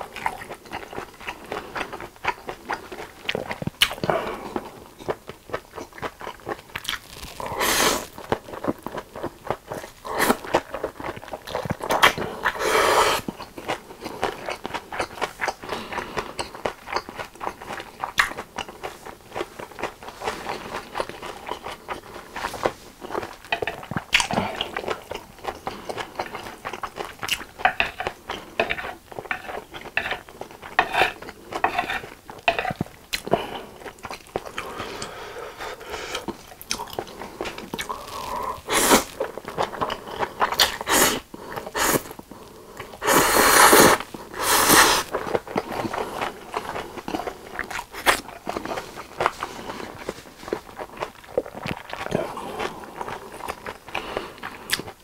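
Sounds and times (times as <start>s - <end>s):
wet chewing with mouth clicks: 0.0s - 55.0s
noodles slurping: 33.2s - 42.1s, 42.8s - 54.8s.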